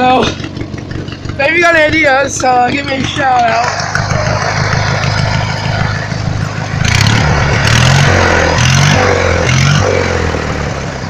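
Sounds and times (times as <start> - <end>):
riding lawnmower engine running: 0.0 - 11.0.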